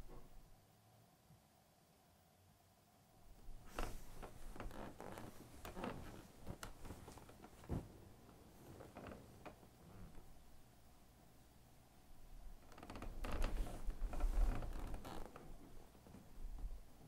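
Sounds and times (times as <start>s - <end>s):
bedding rustling: 3.4s - 10.5s, 12.6s - 16.8s.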